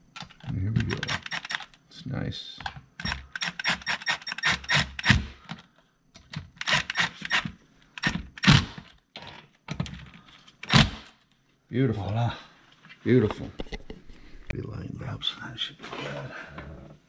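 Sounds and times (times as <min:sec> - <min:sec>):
cordless drill driving screws: 0:03.0 - 0:05.2, 0:06.6 - 0:08.6.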